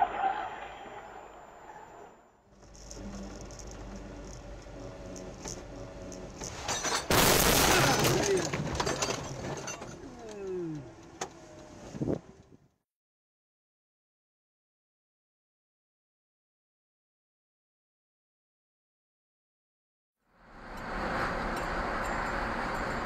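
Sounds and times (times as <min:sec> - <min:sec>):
car crash with breaking glass: 0:06.4 - 0:10.0.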